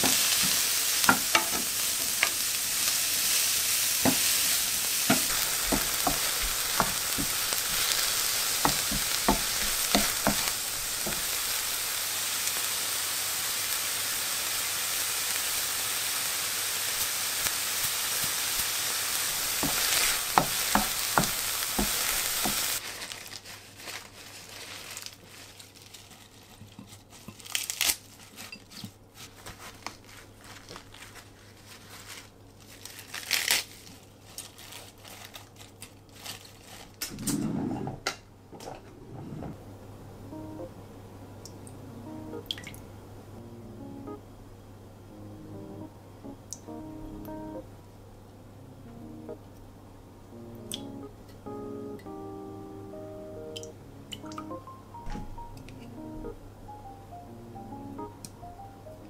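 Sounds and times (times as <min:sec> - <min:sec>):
mushrooms sizzling in frying pan: 0:00.0 - 0:22.9
lettuce leaves rustling: 0:02.7 - 0:11.8, 0:19.4 - 0:37.3
spatula scraping pan: 0:37.2 - 0:38.0.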